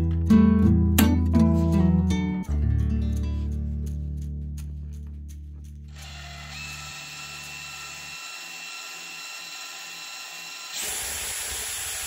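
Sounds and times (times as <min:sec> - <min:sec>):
cordless drill motor whining: 0:05.9 - 0:12.0.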